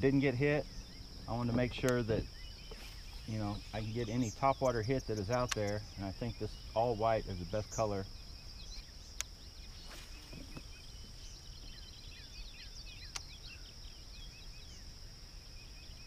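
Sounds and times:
bird chirps: 0.0s - 16.0s
insect trill: 0.0s - 16.0s
sharp clicks: 5.2s - 5.8s, 13.1s - 13.3s.

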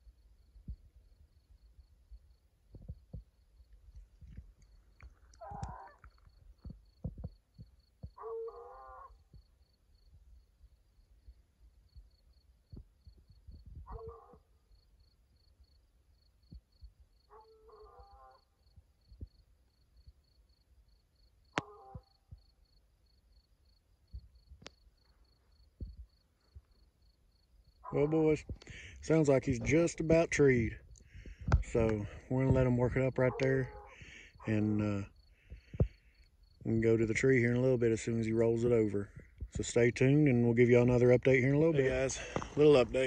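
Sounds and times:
distant hound baying: 5.3s - 6.2s, 8.0s - 9.4s, 13.8s - 14.5s, 17.2s - 18.6s, 21.5s - 22.4s, 27.7s - 28.9s, 32.8s - 34.6s.

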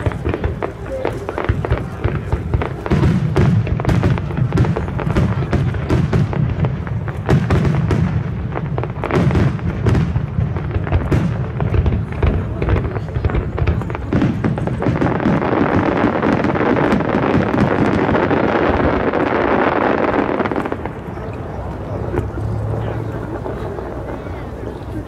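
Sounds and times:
fireworks bangs: 0.0s - 25.0s
continuous low rumble: 17.6s - 25.0s.

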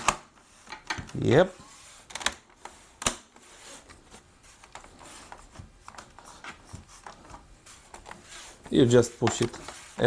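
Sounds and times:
plastic clicks and rubbing: 2.0s - 3.2s, 3.8s - 10.0s.

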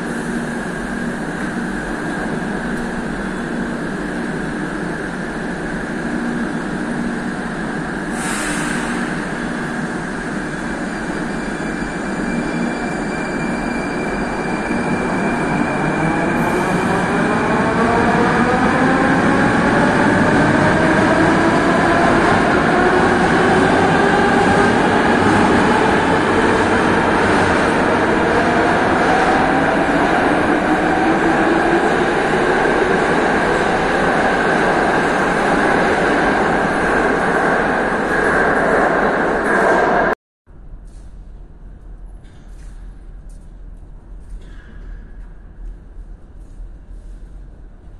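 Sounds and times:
brief hiss: 8.2s - 9.0s.

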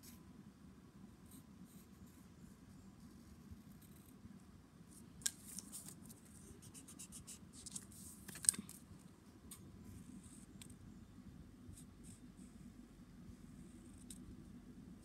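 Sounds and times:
pencil scratching on paper: 6.4s - 7.4s.

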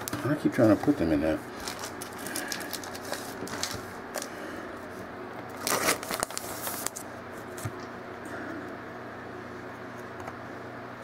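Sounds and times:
card rustle: 0.1s - 4.3s, 5.5s - 7.0s.

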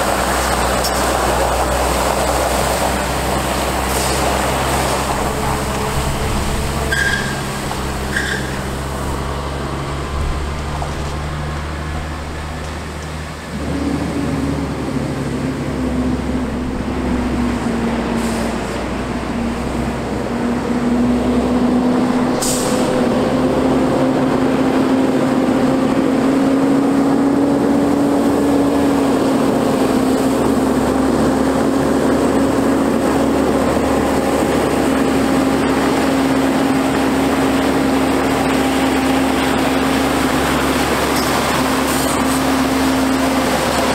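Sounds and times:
diesel engine running: 0.0s - 43.9s
short air hisses: 22.4s - 22.9s.

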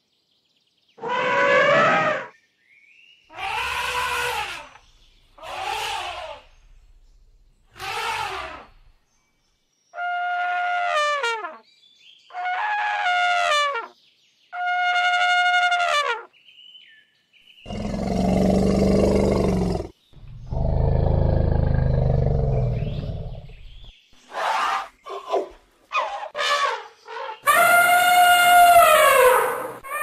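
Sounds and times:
elephant trumpeting: 1.0s - 2.3s, 3.4s - 4.8s, 5.4s - 6.6s, 7.8s - 8.8s, 26.0s - 30.0s.

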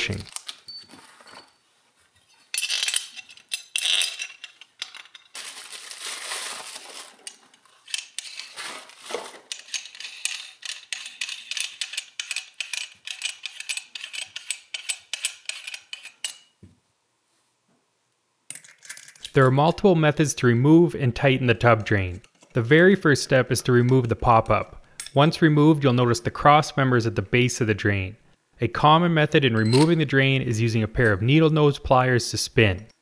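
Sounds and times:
metal parts clinking: 0.0s - 1.6s, 2.3s - 5.7s, 7.0s - 8.9s, 9.5s - 16.5s, 18.5s - 19.4s
rustling: 0.1s - 2.6s, 3.9s - 9.7s.

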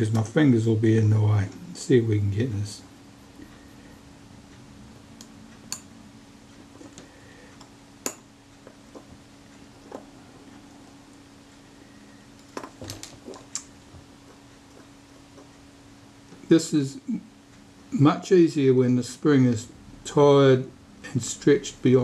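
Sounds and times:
steady low hum: 0.0s - 22.0s
tweezers clicking on metal parts: 5.2s - 5.9s.

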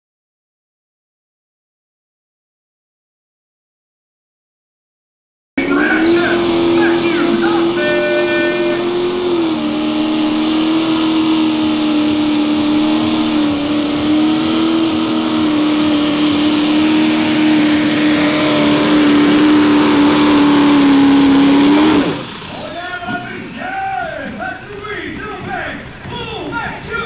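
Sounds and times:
tractor engine at high revs: 5.6s - 27.0s.

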